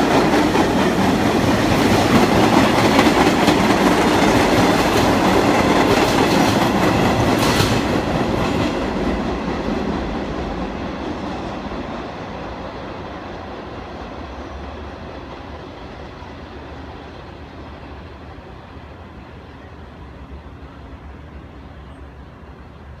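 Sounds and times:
wheels clacking over rail joints: 0.0 - 11.6
subway train passing: 0.0 - 23.0.

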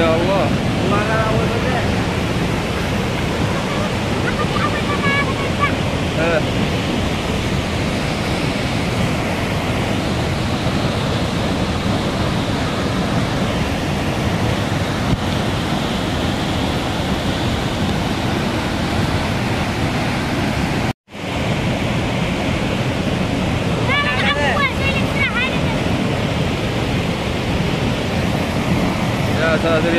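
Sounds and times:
water rushing over waterfall: 0.0 - 29.9.

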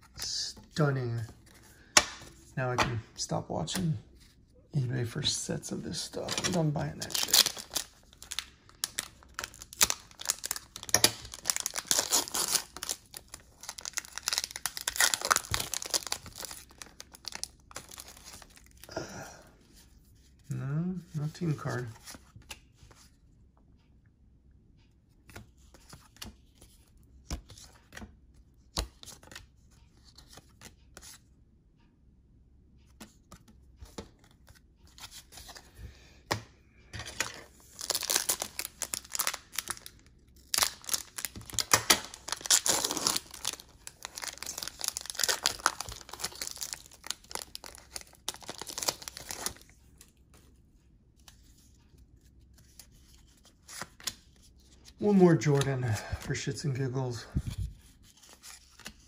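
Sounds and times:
wrappers crinkling and tearing: 6.0 - 18.9, 37.2 - 49.7.

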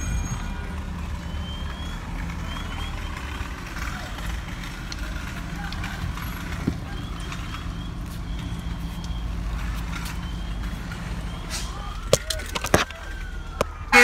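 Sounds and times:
faint emergency siren wailing: 0.0 - 14.0
low vehicle rumble: 0.0 - 14.0.

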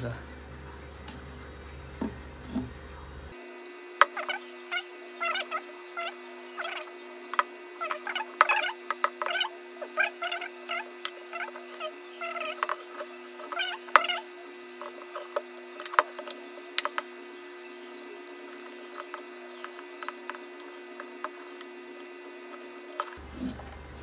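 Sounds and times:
low hum: 0.0 - 24.0
pitched squeaks: 4.1 - 7.1, 7.8 - 23.7.

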